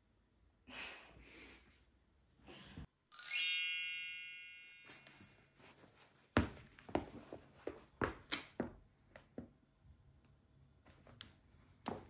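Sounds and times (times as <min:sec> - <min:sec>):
bright sparkling chime: 0:03.1 - 0:05.4.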